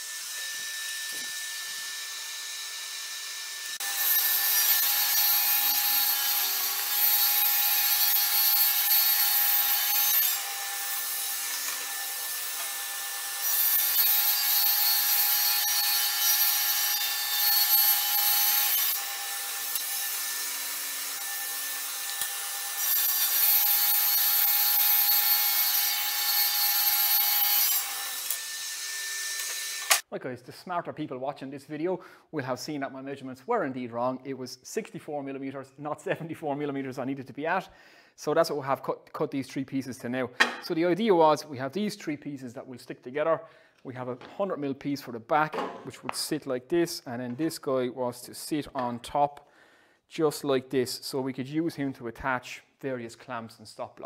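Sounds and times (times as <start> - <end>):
saw cutting chipboard with harsh hiss: 0.0 - 30.0
table saw whine: 0.0 - 30.0.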